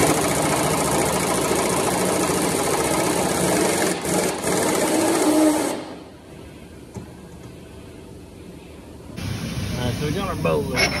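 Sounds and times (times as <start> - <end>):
pneumatic impact wrench: 0.0 - 6.0.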